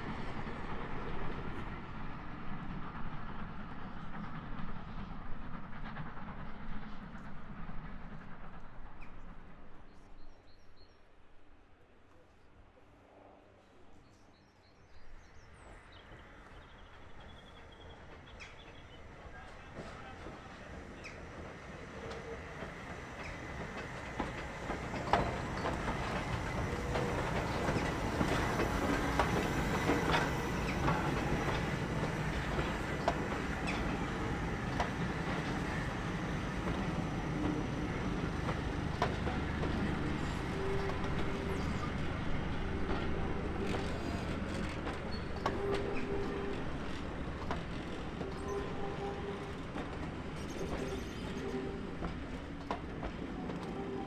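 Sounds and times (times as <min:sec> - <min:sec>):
train running on track: 0:00.0 - 0:54.0
wheels clicking over rail joints: 0:18.1 - 0:53.8.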